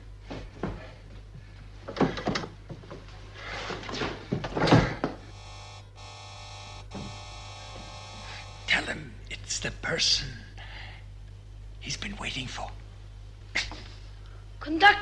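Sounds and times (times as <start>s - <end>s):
multi-tone electronic hum: 5.1s - 15.0s.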